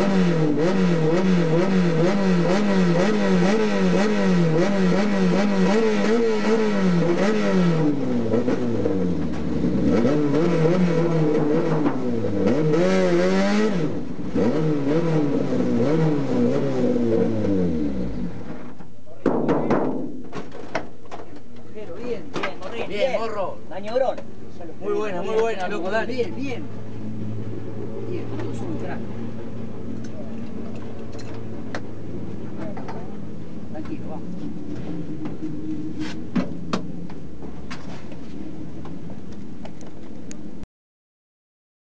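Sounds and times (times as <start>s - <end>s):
race car engine revving: 0.0s - 18.5s.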